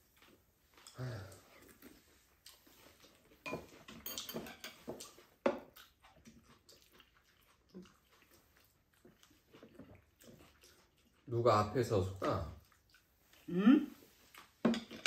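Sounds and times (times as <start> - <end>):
chewing mouth sounds: 0.1 - 11.3, 12.1 - 13.5
utensils clinking on ceramic bowls: 3.4 - 5.0.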